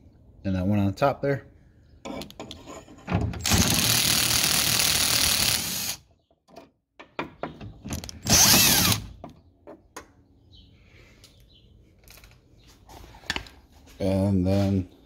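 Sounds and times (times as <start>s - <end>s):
cordless drill running: 3.6s - 6.0s, 8.3s - 9.1s.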